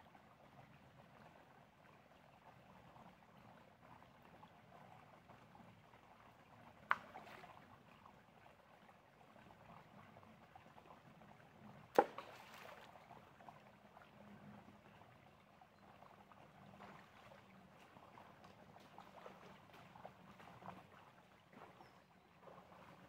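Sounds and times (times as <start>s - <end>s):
stream trickling over stones: 0.0s - 23.0s
water splashes: 6.5s - 10.9s, 11.8s - 14.2s, 14.8s - 23.0s.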